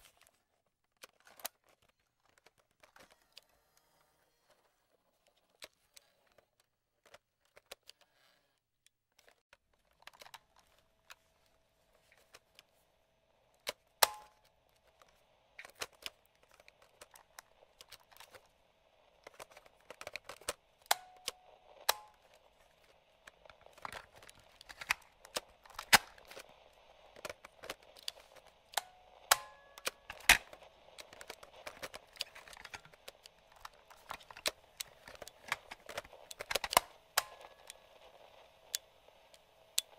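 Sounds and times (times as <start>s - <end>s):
radio static hiss: 17.0s - 39.9s.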